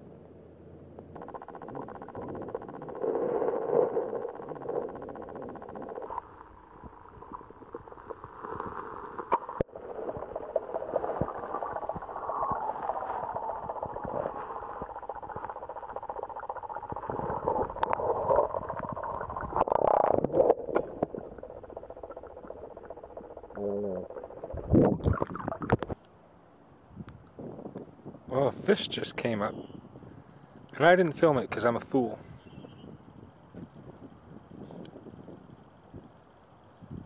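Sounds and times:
muffled underwater gurgling: 1.0s - 26.0s.

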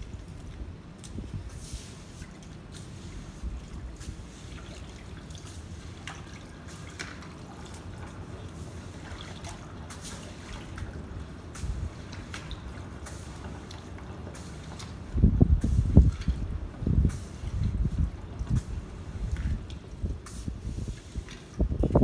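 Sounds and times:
water dripping and trickling: 0.0s - 22.0s
steady low rumble: 14.2s - 22.0s.

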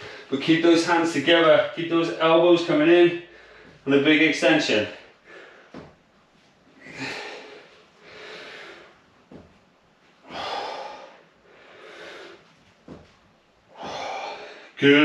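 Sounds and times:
man breathing hard: 3.2s - 3.8s, 5.0s - 5.9s, 6.8s - 9.5s, 10.2s - 14.8s.

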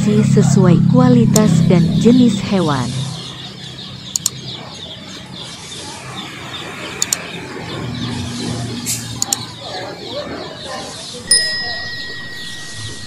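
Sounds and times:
chicks and ducklings peeping: 3.3s - 11.2s
sharp double click: 4.1s - 4.4s.

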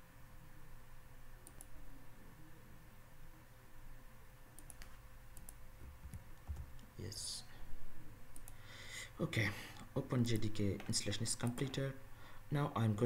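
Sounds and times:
computer keys clicking: 1.4s - 1.7s, 4.6s - 6.9s, 8.3s - 8.6s.

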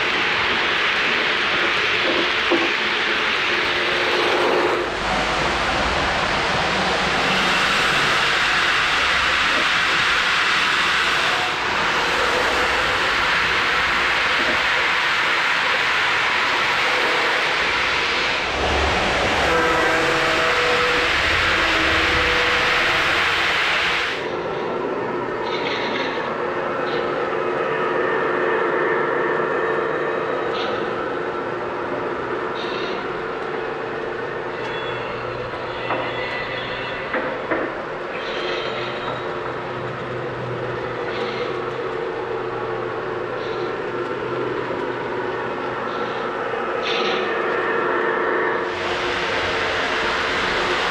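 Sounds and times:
model train running on track: 0.0s - 50.9s
train horn chord: 18.5s - 24.2s, 47.0s - 50.9s.

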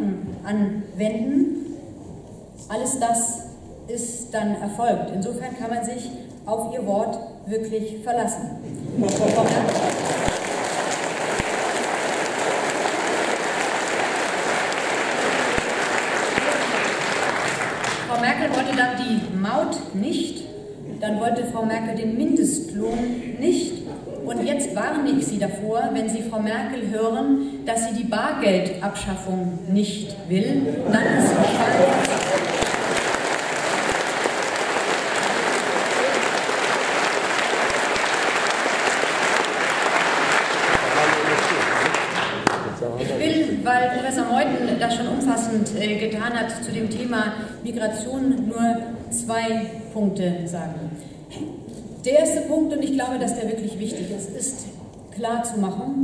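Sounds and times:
audience applauding: 9.0s - 18.8s, 31.2s - 43.0s.

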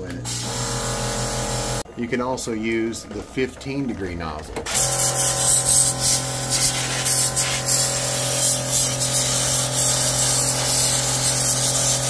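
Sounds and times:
sprayer motor hum: 0.0s - 12.0s
water jet hissing: 4.7s - 12.0s.

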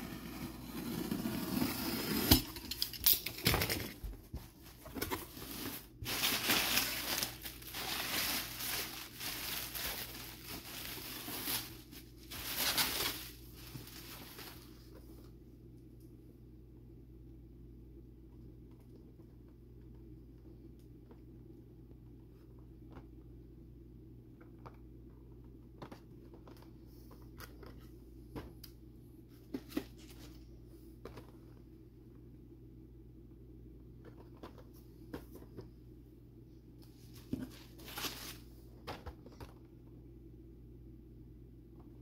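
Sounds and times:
packaging rustling and crinkling: 4.2s - 14.9s, 37.0s - 39.5s.

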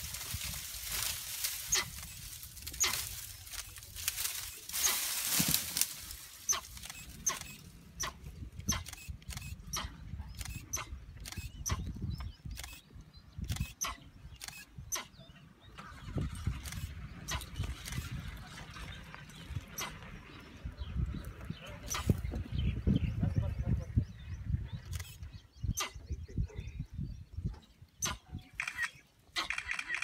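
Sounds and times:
camera shutters clicking: 28.6s - 30.0s.

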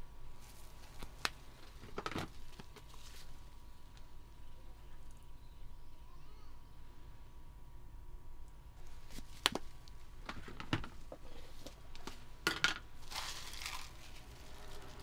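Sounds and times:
topping sprinkled rustling: 13.0s - 15.0s.

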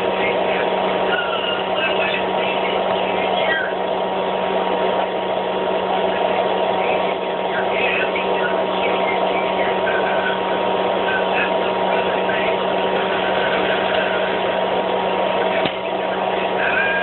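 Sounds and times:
popcorn popper humming: 0.0s - 17.0s.

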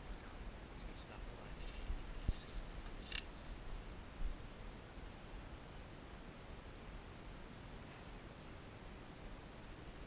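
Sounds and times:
fishing reel clicks: 1.5s - 3.6s
fishing reel whir: 1.5s - 3.7s.

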